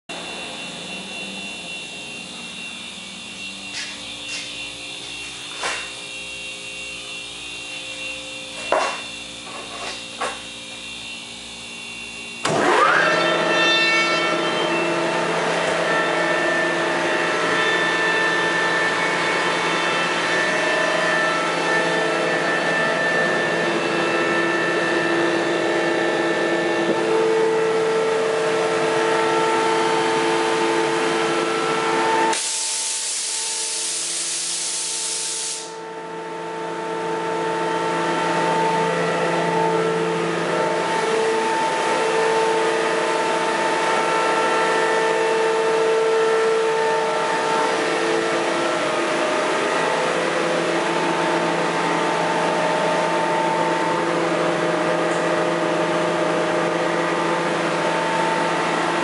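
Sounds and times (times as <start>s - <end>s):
air compressor running: 0.1s - 59.0s
motor starting whine: 0.1s - 59.0s
loud hiss of air: 32.3s - 35.8s.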